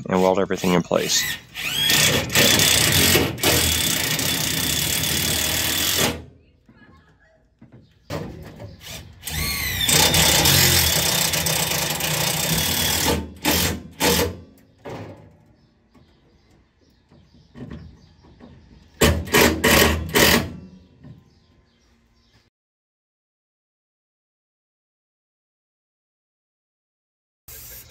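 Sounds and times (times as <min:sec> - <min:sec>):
power drill driving screws: 0:00.3 - 0:06.2, 0:08.8 - 0:14.4, 0:19.0 - 0:20.6.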